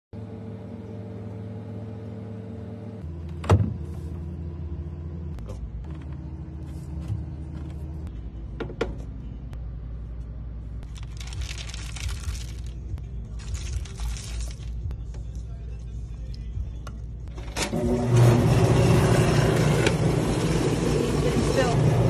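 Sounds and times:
cereal pouring into plastic cup: 0:13.4 - 0:14.7.

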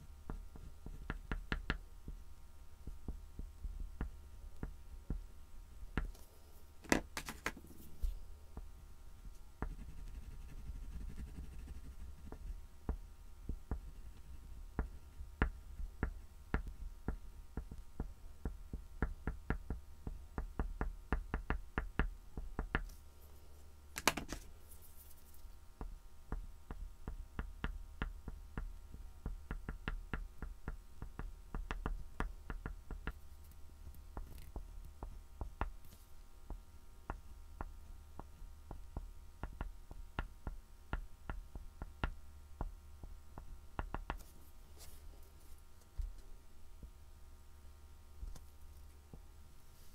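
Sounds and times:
low steady hum: 0:00.0 - 0:49.9
pastel scratching on board: 0:09.6 - 0:12.5.

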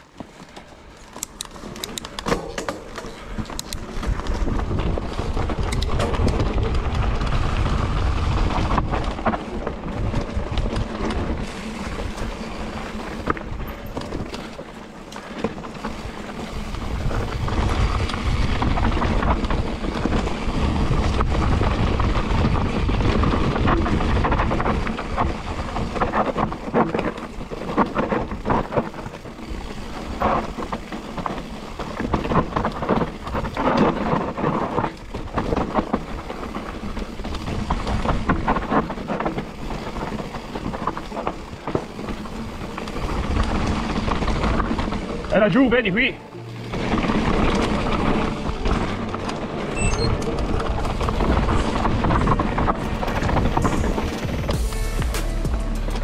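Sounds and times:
tyres crunching over dirt and stones: 0:00.0 - 0:54.9
bike rattling over bumps: 0:00.0 - 0:55.4
wind buffeting microphone: 0:15.9 - 0:26.7.

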